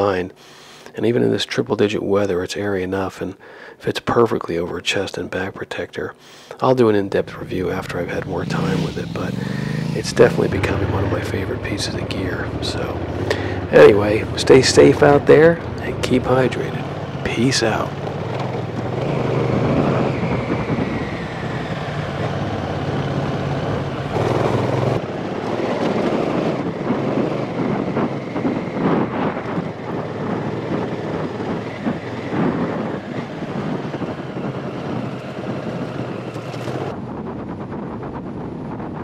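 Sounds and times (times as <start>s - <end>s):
motorcycle engine running: 7.2s - 28.4s, 29.1s - 36.9s
wind noise on microphone: 7.2s - 39.0s.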